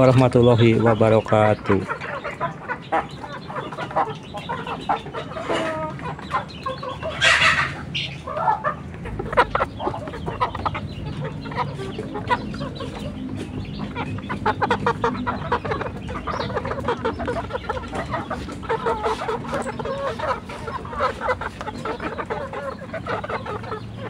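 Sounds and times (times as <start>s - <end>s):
chickens clucking: 0.0s - 24.0s
harsh chicken call: 0.0s - 24.0s.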